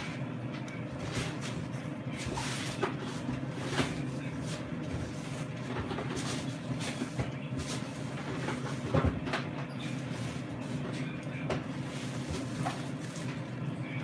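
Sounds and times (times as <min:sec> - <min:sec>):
air fryer humming: 0:00.0 - 0:14.0.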